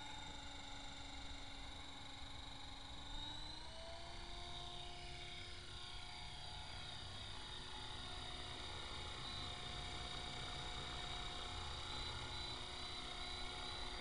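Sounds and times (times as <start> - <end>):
rc helicopter motor whine: 0.0 - 14.0.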